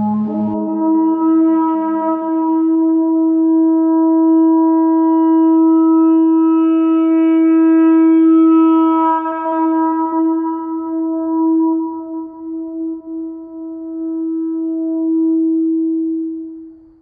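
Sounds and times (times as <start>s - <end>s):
long held musical note: 0.0s - 3.5s.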